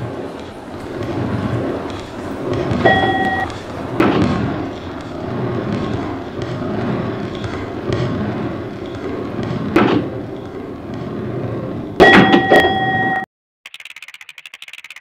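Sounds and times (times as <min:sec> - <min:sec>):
electronic beep with clicks: 0:02.9 - 0:03.5, 0:12.0 - 0:15.0.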